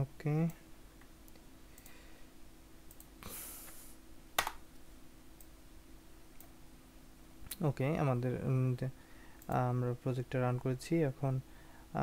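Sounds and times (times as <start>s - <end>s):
faint steady hum: 0.0s - 12.0s
keyboard and mouse clicks: 4.4s - 4.6s.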